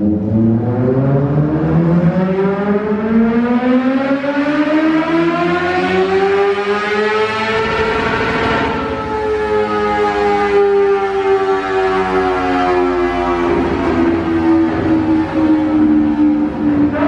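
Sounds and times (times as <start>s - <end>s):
motorcycle engine at full throttle: 5.8s - 9.1s.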